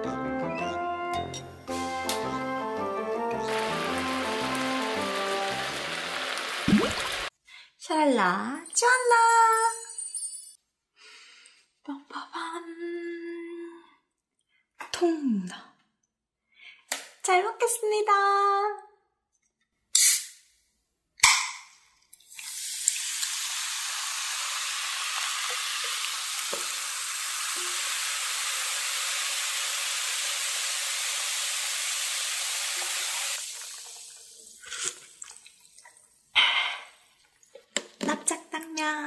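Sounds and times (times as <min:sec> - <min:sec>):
can snapping open with hiss: 0:02.0 - 0:02.3, 0:19.9 - 0:20.4
cola pouring and fizzing: 0:03.4 - 0:07.3, 0:22.1 - 0:36.3, 0:37.0 - 0:37.8
person sipping drink: 0:34.6 - 0:37.1.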